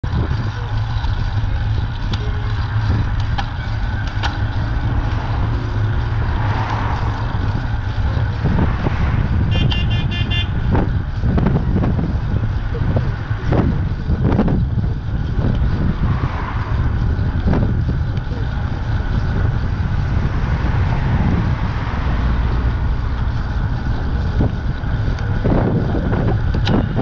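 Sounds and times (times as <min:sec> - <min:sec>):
wind and road rumble: 0:00.0 - 0:27.0
van horn short beeps: 0:09.5 - 0:10.5.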